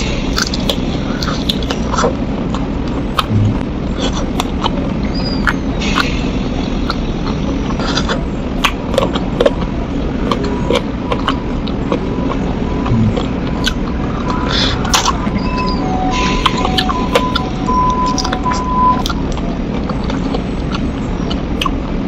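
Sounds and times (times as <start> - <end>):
low rumble: 0.0 - 5.1
wet chewing and smacking: 0.4 - 6.2, 6.9 - 15.3, 16.4 - 21.9.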